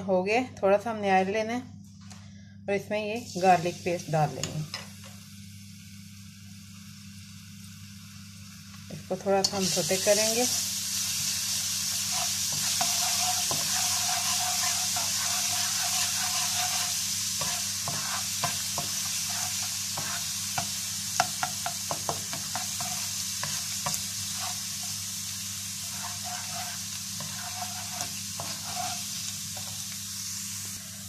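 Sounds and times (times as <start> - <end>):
garlic sizzling in hot oil: 3.2 - 31.0
spatula tapping and scraping pan: 12.1 - 25.0, 25.8 - 29.8.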